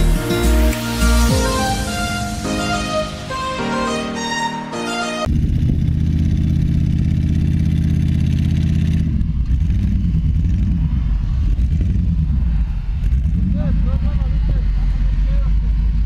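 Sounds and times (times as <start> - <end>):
vehicle engine revving: 5.3 - 16.0.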